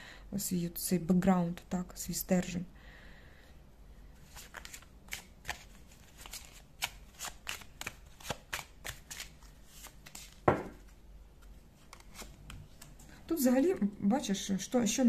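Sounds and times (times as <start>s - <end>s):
cards being shuffled: 4.2s - 13.1s.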